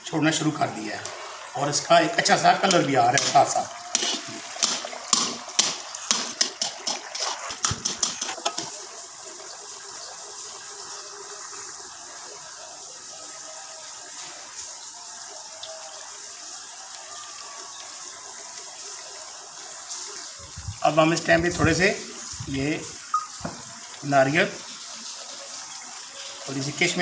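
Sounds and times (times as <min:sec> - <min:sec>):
sizzling hiss of frying: 0:00.0 - 0:27.0
metal spatula scraping a pan: 0:03.9 - 0:05.3, 0:06.6 - 0:08.7.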